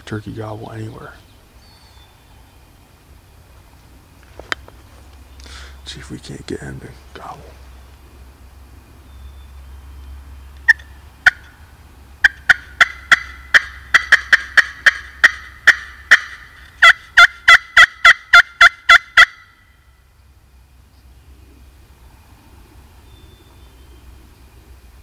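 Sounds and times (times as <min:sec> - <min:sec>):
turkey call notes: 0:05.4 - 0:06.3, 0:10.6 - 0:20.0.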